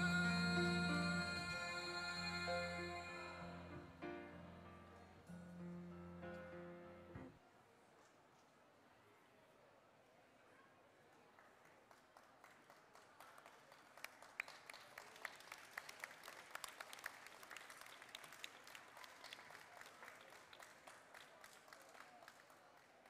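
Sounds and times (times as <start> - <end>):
audience applause: 12.1 - 23.0.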